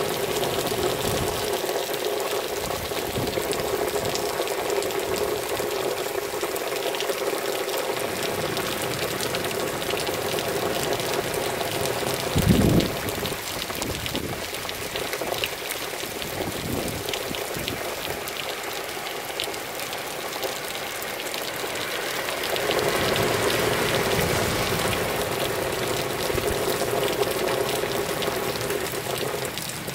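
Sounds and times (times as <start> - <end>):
pouring rain: 0.0 - 29.9
water streaming: 0.0 - 29.9.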